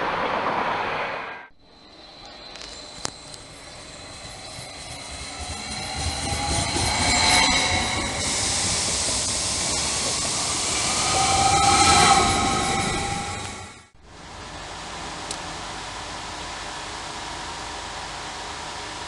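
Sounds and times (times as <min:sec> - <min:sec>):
electric train passing: 0:00.0 - 0:18.8
high whining tones: 0:01.3 - 0:14.0.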